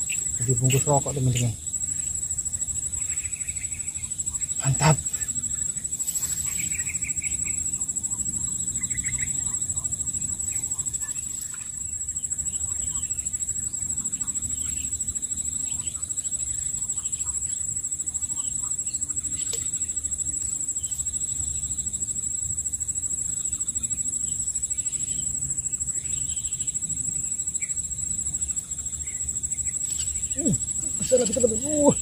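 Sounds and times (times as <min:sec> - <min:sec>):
insect chorus trilling: 0:00.0 - 0:32.0.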